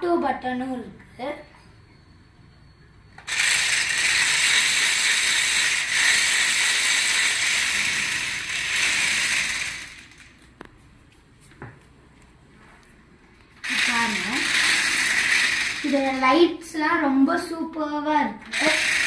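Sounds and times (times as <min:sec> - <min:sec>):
toy car motors whirring: 0:03.2 - 0:10.5, 0:13.6 - 0:16.5, 0:18.4 - 0:19.0.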